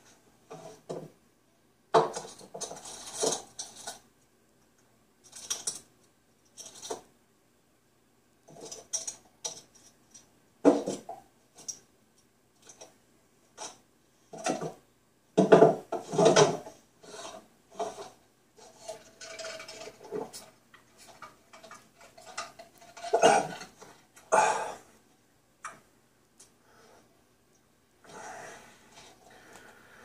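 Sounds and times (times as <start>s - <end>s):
items clinking and knocking: 15.4s - 24.0s.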